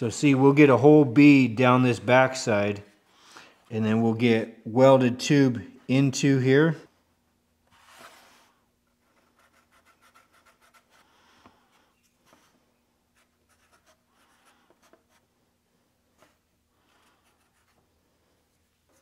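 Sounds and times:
marker scratching on cardboard: 9.1 - 11.0, 13.2 - 15.3, 17.1 - 17.8.

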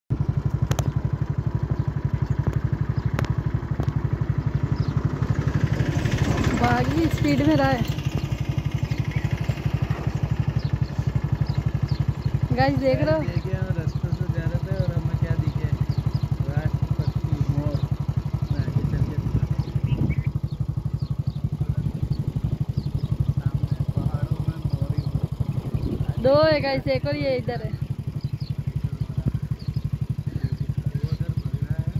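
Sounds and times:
small engine ticking over: 0.1 - 31.9
sharp clicks: 0.5 - 1.0, 2.3 - 4.0.

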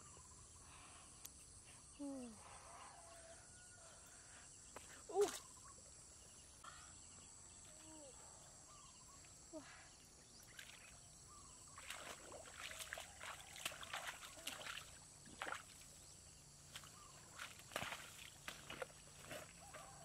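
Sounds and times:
feet splashing in muddy water: 10.4 - 20.0
weeds and twigs crackling: 16.7 - 20.0.

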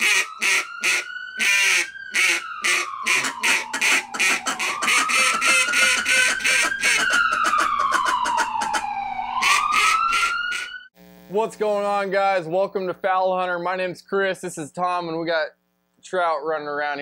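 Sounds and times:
ducks quacking: 0.0 - 8.8
siren wailing: 0.0 - 10.9.

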